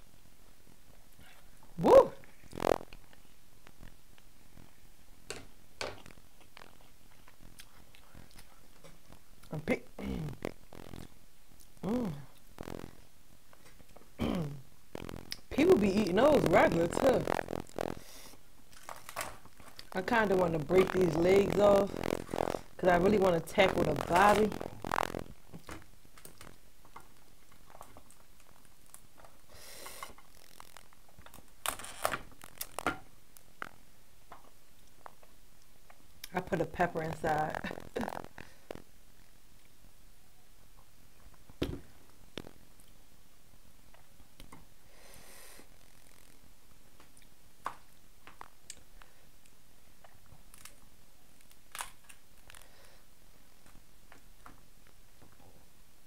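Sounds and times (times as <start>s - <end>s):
crab shell cracking: 16.4s - 18.1s, 18.7s - 20.0s, 29.9s - 33.8s, 50.5s - 52.7s
crab shell clicks and crackles: 16.4s - 20.0s, 23.6s - 36.3s, 47.0s - 52.9s.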